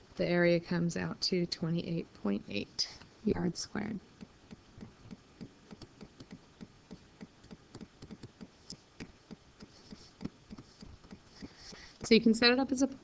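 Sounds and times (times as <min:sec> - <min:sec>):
stylus tapping on writing tablet: 0:04.2 - 0:11.6.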